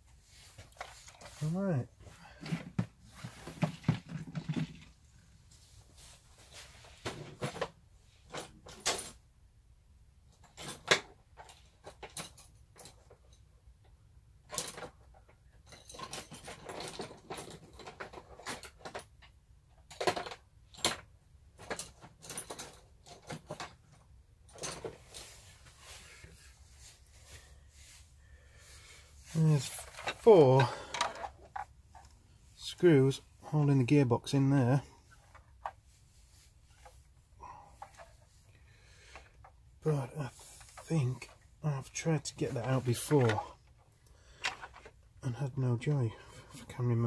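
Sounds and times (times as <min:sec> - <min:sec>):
tools clattering in plastic organizer: 0:02.4 - 0:05.0, 0:10.3 - 0:13.4, 0:14.4 - 0:25.4, 0:29.4 - 0:32.1.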